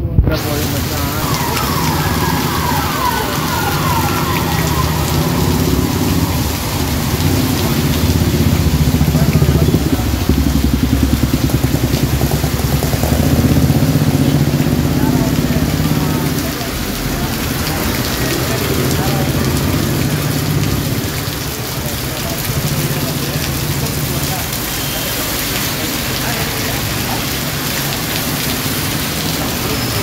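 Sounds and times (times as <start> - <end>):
heavy rain pouring: 0.0 - 30.0
falling whines: 0.4 - 8.8
vehicles hissing past on wet road: 0.4 - 30.0.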